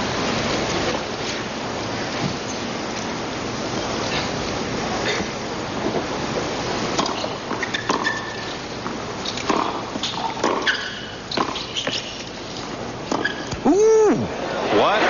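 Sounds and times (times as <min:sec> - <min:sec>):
spectators calling out: 0:13.6 - 0:14.9
crowd murmuring: 0:13.6 - 0:15.0.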